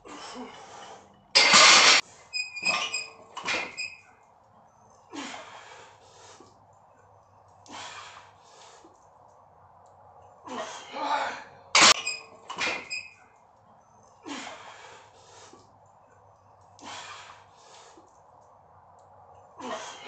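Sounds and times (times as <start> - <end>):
barbell clanking: 1.4 - 3.8, 11.8 - 13.0
person breathing hard: 5.1 - 6.6, 7.6 - 9.0, 14.2 - 15.7, 16.8 - 18.1.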